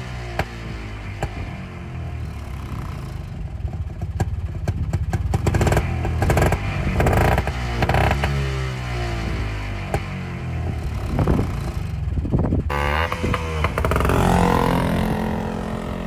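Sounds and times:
two-stroke engine revving: 0.0s - 16.0s.

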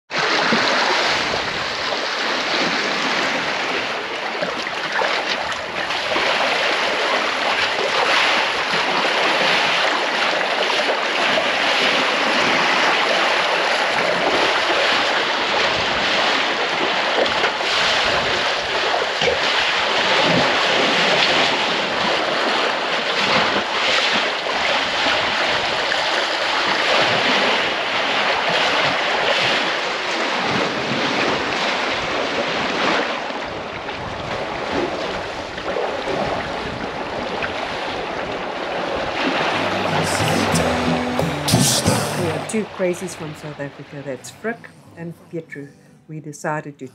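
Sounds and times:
water splashing against hull: 0.1s - 40.1s.

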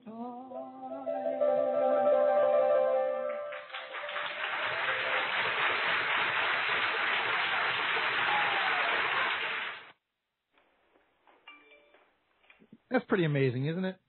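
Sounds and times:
audience applause: 3.2s - 10.0s.

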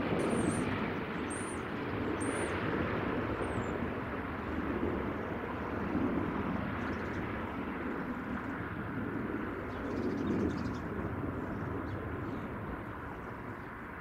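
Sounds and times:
jet airliner engines rushing: 0.0s - 14.0s.

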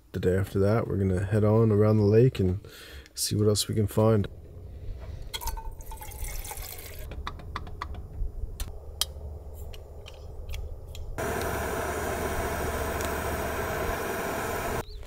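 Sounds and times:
cooking gear clicks and taps: 7.0s - 8.0s
steady hiss: 9.2s - 14.8s.

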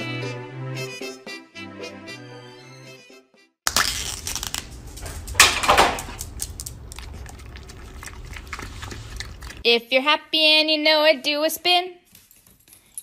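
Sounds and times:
background music: 0.0s - 3.6s.

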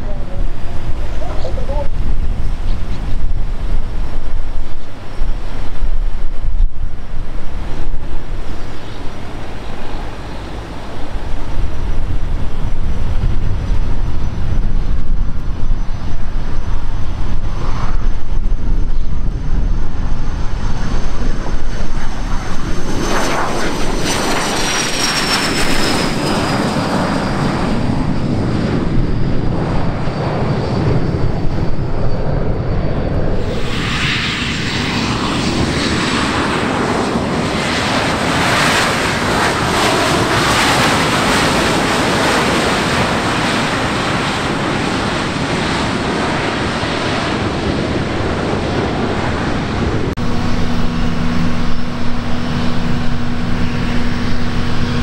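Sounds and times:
jet engine whine: 0.0s - 55.0s
wind rumble on microphone: 0.0s - 55.0s.

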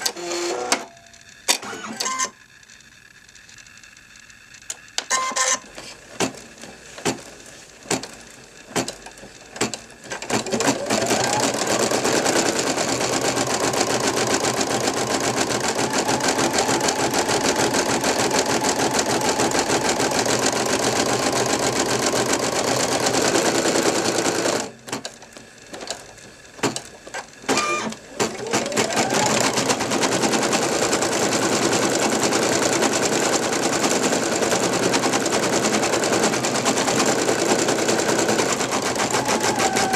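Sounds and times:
embroidery machine stitching: 0.0s - 0.9s, 5.0s - 39.9s.

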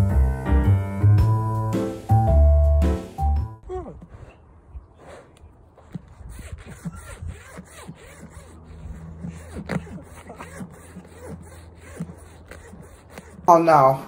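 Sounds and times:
zipper clicks and scrapes: 5.0s - 13.6s.

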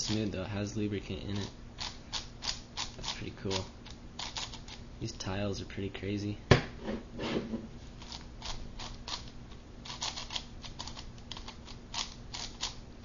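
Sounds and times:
puzzle cube clicking: 9.1s - 12.8s.

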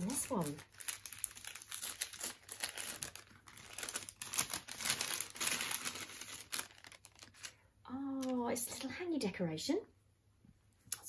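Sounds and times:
paper gift bag crinkling: 0.0s - 7.6s.

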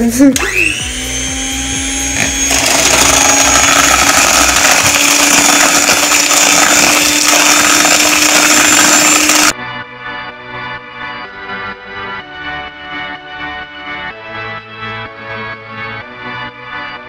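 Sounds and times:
electric blender motor whine: 0.4s - 9.6s.

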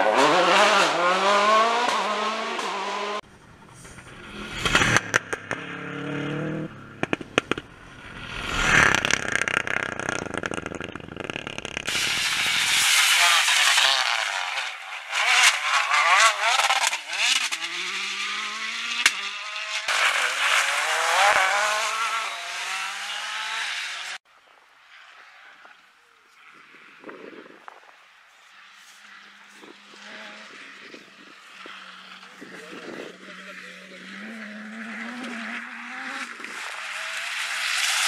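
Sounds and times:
rally car engines revving: 0.0s - 24.2s, 28.6s - 38.0s
tyres hissing on gravel: 11.8s - 14.6s.

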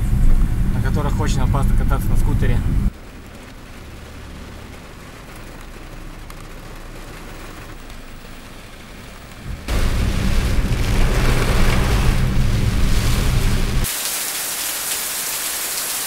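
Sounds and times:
deep low rumble: 0.0s - 2.9s, 9.4s - 13.9s
heavy rain drumming on a car: 0.0s - 16.0s.

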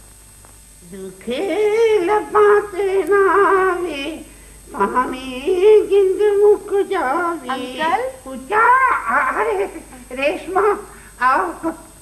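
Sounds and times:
wavering singing-like melody: 1.2s - 8.0s.

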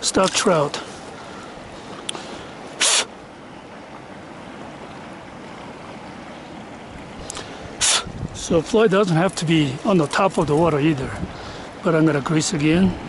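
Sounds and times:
river water running: 0.0s - 13.0s
short sharp hiss: 2.2s - 3.1s, 7.2s - 8.1s.

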